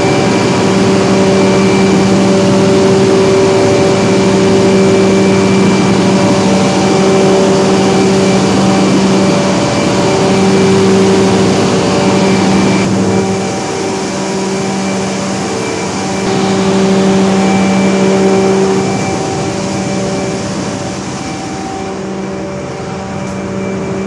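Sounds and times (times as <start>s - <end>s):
generators droning: 0.0s - 24.0s.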